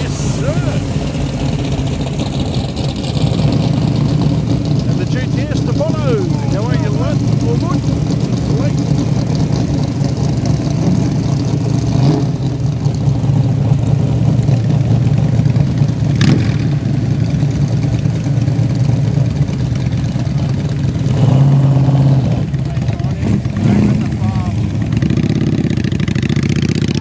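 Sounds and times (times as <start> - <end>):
held engine note: 0.0 - 11.6
car engines driving slowly past: 0.0 - 27.0.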